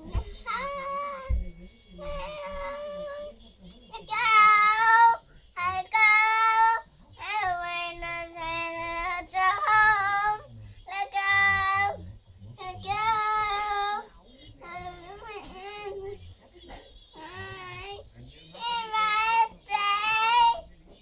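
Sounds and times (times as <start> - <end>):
girl singing: 0.0 - 1.4, 2.0 - 3.3.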